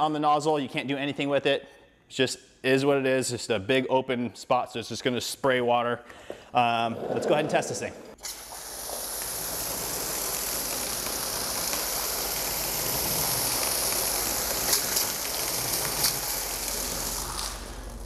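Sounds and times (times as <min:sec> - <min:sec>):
foam gun spraying water: 0:08.2 - 0:18.0.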